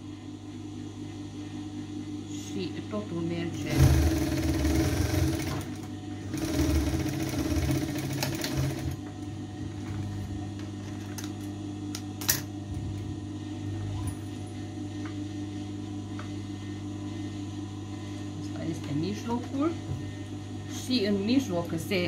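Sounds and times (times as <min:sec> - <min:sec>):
steady hum: 0:00.0 - 0:22.0
sewing machine stitching: 0:03.6 - 0:09.0.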